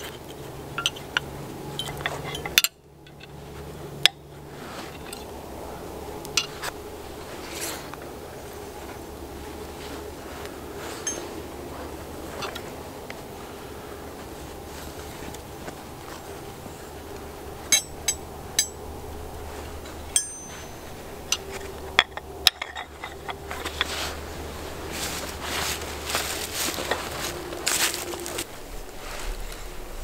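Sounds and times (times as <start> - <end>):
metal hand tools clinking: 0.0 - 3.4, 6.3 - 6.7, 11.0 - 11.4, 17.6 - 18.8, 19.8 - 24.2
fleece hide rustling: 3.2 - 5.6, 6.3 - 29.9.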